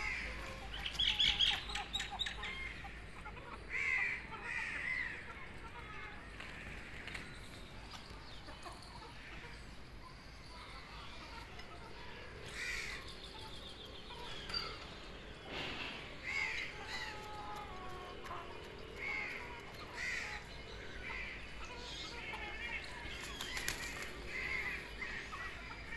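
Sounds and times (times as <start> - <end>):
birds giving harsh calls: 0.0 - 25.9
faint outdoor background noise: 0.0 - 25.9.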